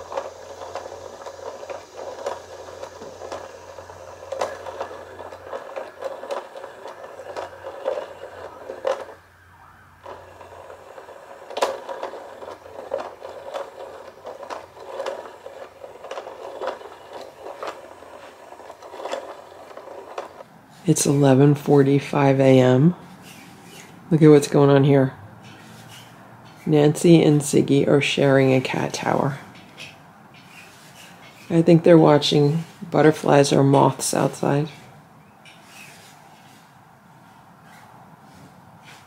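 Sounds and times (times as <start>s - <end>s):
toy motor whirring with clicks: 0.0s - 9.2s, 10.0s - 20.5s.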